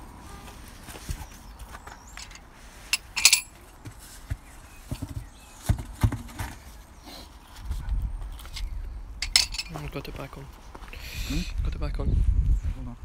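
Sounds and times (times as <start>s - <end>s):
metal wheel clanking on concrete: 2.2s - 3.5s, 9.2s - 9.9s
wheel thumping on ground: 3.3s - 6.7s.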